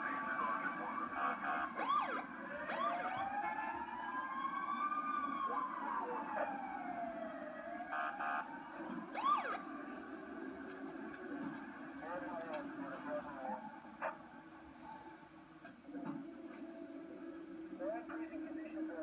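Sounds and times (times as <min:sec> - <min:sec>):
siren yelps: 0:00.0 - 0:09.8
fire engine siren wailing: 0:00.0 - 0:13.6.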